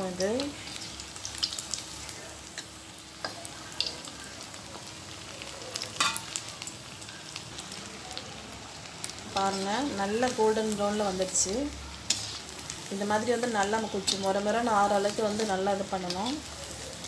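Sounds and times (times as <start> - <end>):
deep-frying sizzle with pops: 0.0 - 17.0
slotted spoon moving in oil: 11.3 - 14.3.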